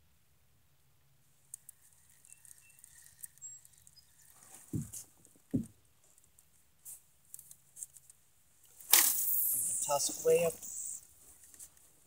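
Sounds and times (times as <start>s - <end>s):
faint clicks and rustles: 1.2s - 9.6s, 11.0s - 12.0s
faint high chirps: 1.5s - 4.8s, 9.0s - 11.1s.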